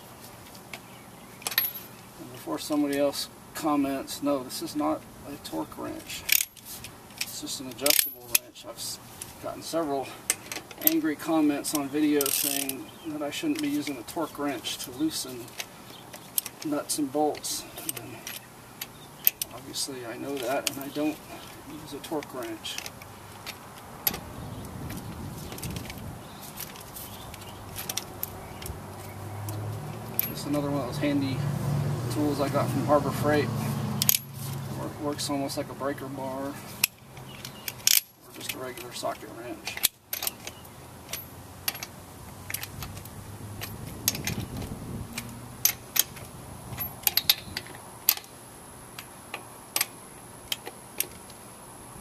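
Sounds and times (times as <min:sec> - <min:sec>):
socket wrench metal clicks: 0:34.0 - 0:34.3.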